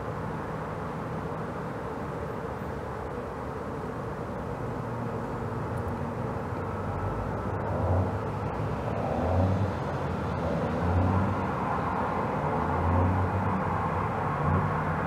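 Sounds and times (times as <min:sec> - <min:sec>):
outdoor background rumble: 0:00.0 - 0:15.0.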